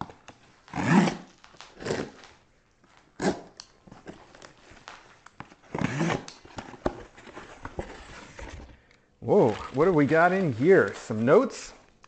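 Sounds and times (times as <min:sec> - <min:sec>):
cardboard box being handled: 0:06.5 - 0:11.0.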